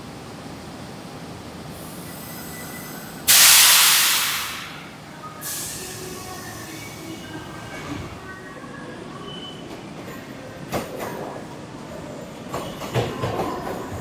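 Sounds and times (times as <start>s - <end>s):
standing train hum: 0.0s - 14.0s
compressed air hiss: 3.3s - 4.8s, 5.4s - 6.8s.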